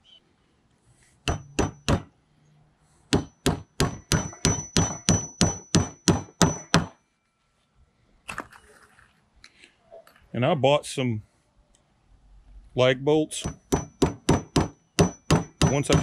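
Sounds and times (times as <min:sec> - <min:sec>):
hammer striking nails into metal: 0:01.2 - 0:02.1, 0:03.1 - 0:07.0, 0:13.4 - 0:16.0.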